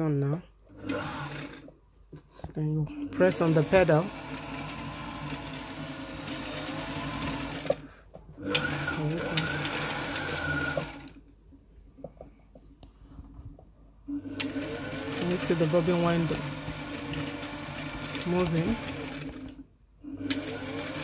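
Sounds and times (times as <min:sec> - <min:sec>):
sewing machine motor running: 0:00.7 - 0:01.7, 0:03.1 - 0:11.2, 0:14.1 - 0:21.0.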